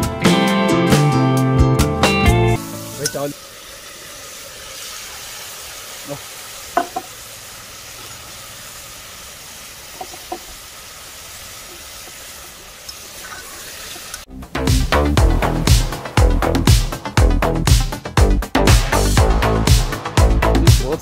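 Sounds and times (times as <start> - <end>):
food sizzling in oil: 2.5 - 18.2
spoon knocking against pot: 6.7 - 7.1.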